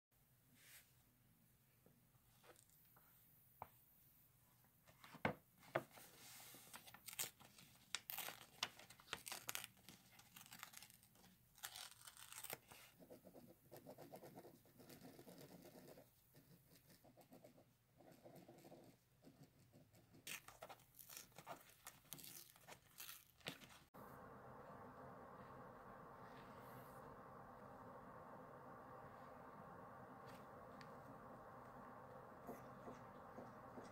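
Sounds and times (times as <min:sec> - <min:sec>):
paper tearing and crinkling: 0:06.8 - 0:12.9, 0:20.3 - 0:23.8.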